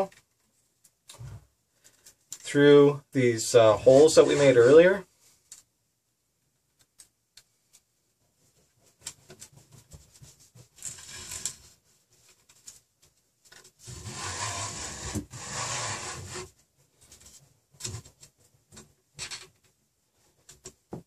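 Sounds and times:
wire rubbing against wood: 3.8s - 4.8s, 8.8s - 11.8s, 13.8s - 16.6s.

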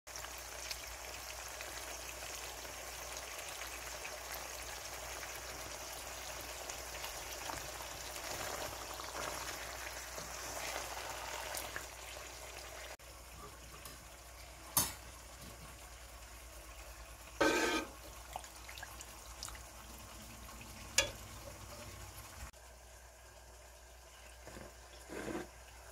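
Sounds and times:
chicken sizzling in hot oil: 0.1s - 25.9s
pasta in boiling water: 0.1s - 25.9s.

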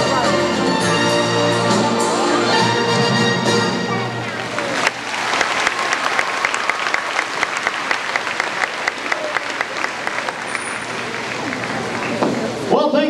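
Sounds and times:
audience applauding: 4.1s - 12.7s
sharp close hand claps: 4.4s - 12.6s.

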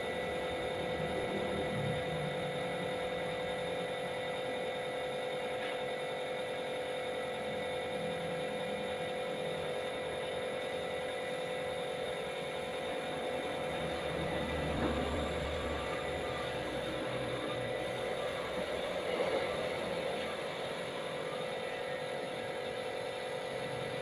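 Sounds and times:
air compressor hum and whine: 0.0s - 24.0s.

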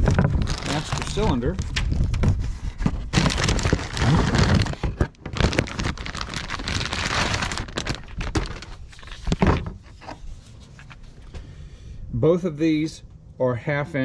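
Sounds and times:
plastic packaging crinkling: 0.0s - 9.8s
parts being handled: 7.3s - 11.5s.

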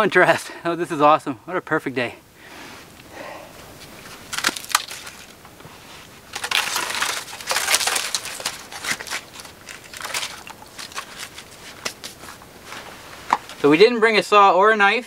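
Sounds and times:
charred wood crunching: 2.4s - 13.8s.

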